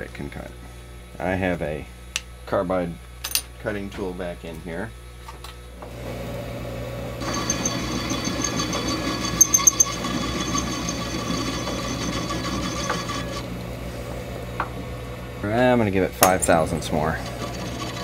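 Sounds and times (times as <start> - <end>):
metal lathe humming: 5.9 - 18.0
lathe tool cutting metal rod: 7.2 - 13.5, 16.5 - 18.0.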